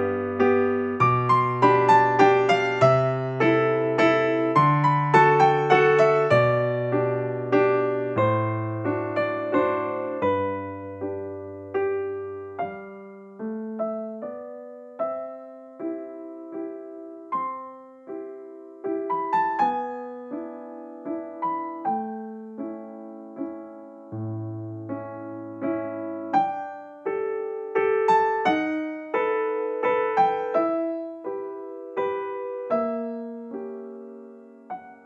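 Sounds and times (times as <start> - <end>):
slow piano music: 0.0 - 35.0.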